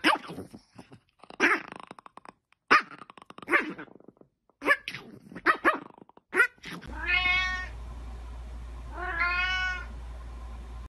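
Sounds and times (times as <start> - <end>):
cat meowing: 6.9 - 7.7, 8.9 - 9.9.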